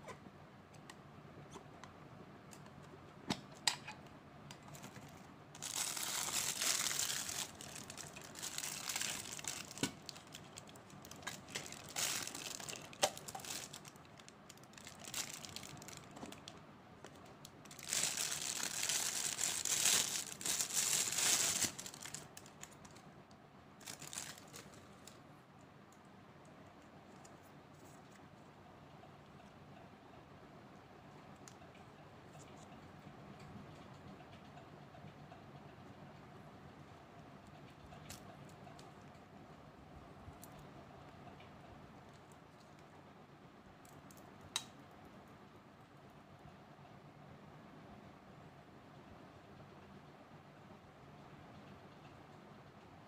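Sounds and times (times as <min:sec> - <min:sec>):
plastic packaging crinkling: 0:04.7 - 0:16.6, 0:17.6 - 0:23.1, 0:23.8 - 0:25.2.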